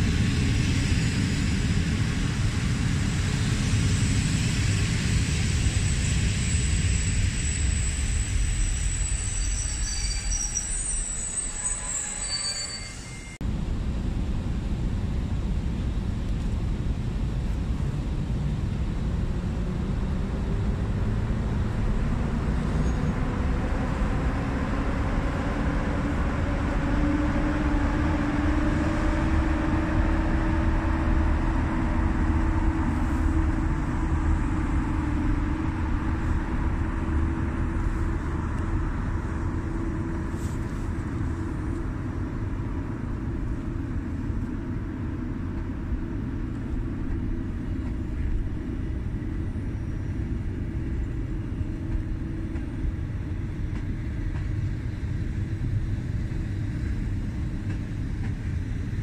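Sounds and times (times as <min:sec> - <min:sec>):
electric locomotive motors humming: 0:00.0 - 0:59.0
wheels rumbling on rail: 0:00.0 - 0:59.0.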